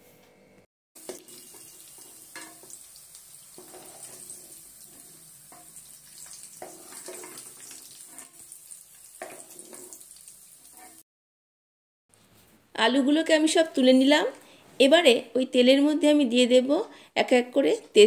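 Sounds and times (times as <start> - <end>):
hot oil sizzling: 1.0 - 11.0
steel ladle scraping a pan: 1.0 - 11.0.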